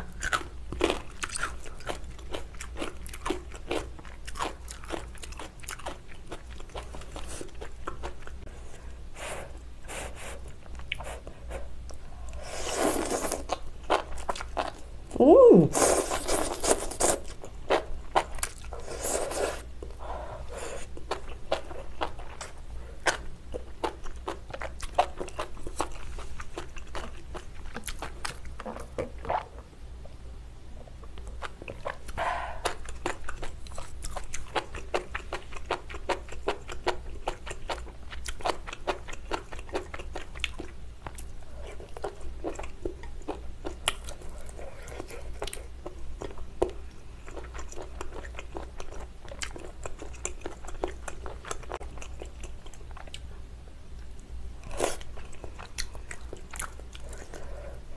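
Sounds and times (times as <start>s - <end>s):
chewing with wet mouth clicks: 0.1s - 8.4s, 21.0s - 29.5s, 31.0s - 53.3s, 54.0s - 57.4s.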